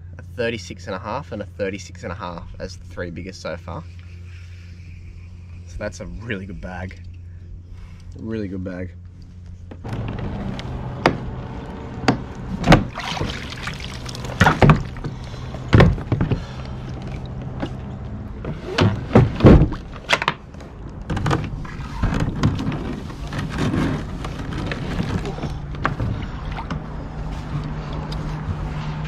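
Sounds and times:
engine humming: 1.4 - 29.0
sharp knocks and thuds: 12.0 - 13.5, 14.2 - 16.6, 18.4 - 20.4.

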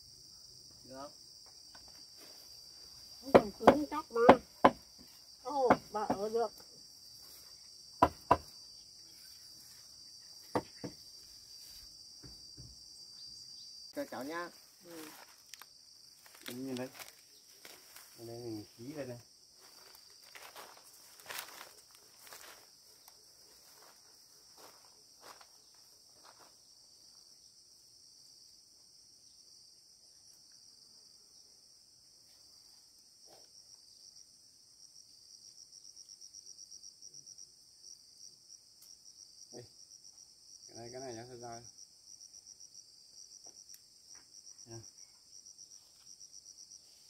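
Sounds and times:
insects droning: 0.0 - 47.0
sharp knocks: 3.3 - 4.8, 8.0 - 8.5.

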